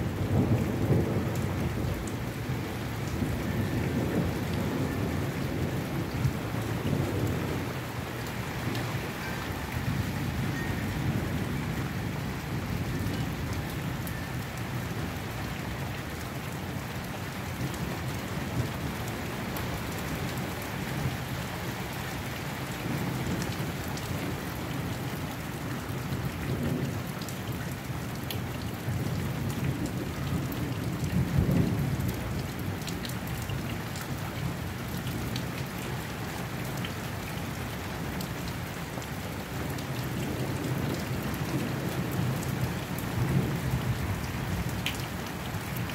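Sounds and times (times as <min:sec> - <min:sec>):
low thunder rumbling: 0:00.0 - 0:09.0
steady rain falling: 0:00.0 - 0:45.9
raindrop ticks: 0:44.6 - 0:45.1.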